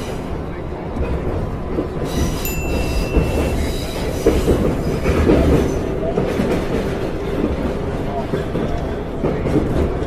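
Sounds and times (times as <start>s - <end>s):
metro train rumble: 0.0s - 10.0s.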